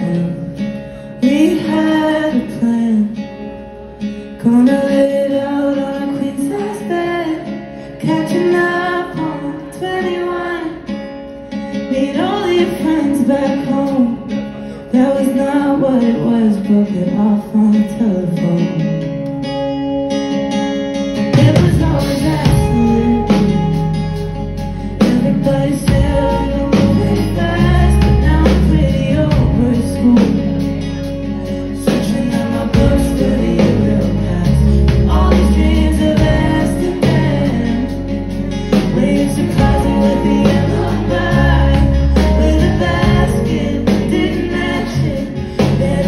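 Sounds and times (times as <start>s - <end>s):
person singing: 0.0s - 19.3s, 21.0s - 46.0s
bass guitar: 0.0s - 46.0s
electric and acoustic guitars: 0.0s - 46.0s
steady drum beat: 31.8s - 46.0s.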